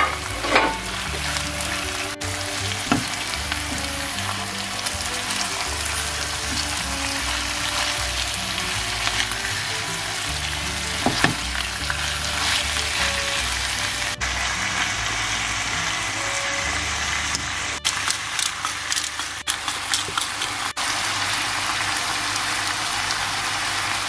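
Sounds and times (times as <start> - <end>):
food sizzling in a frying pan: 0.1 - 24.0
spatula stirring: 2.7 - 14.0, 17.8 - 20.8.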